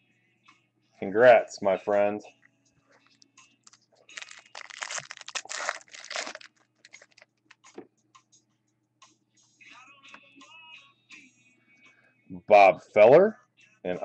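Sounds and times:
foil wrapper crinkling: 4.1 - 7.3.

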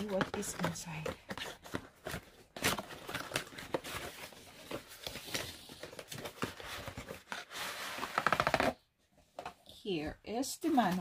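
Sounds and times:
packaging scraping and rustling: 0.0 - 8.8.

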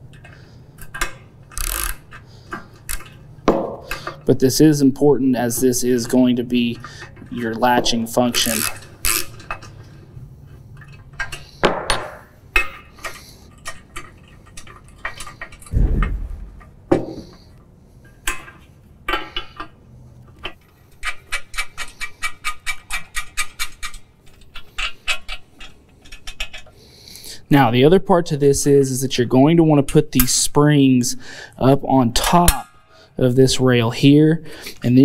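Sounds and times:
dull thump: 15.7 - 17.2.

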